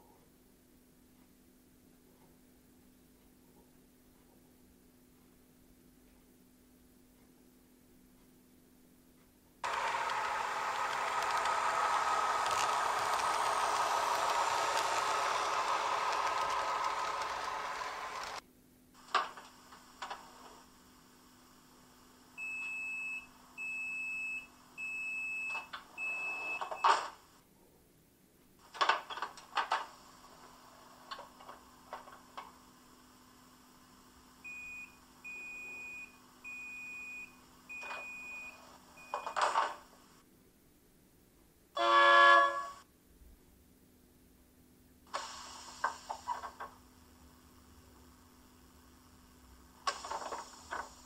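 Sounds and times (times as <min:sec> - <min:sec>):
faint steady hum: 0:00.0 - 0:51.0
door opening clicks and hiss: 0:19.0 - 0:20.6, 0:28.7 - 0:32.6, 0:39.1 - 0:40.0, 0:45.1 - 0:46.8, 0:49.8 - 0:51.0
train horn blast: 0:41.8 - 0:42.8.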